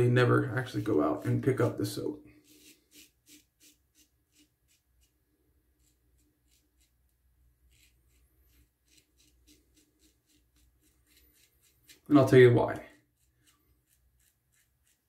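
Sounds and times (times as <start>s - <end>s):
razor scraping stubble: 0.2s - 15.0s.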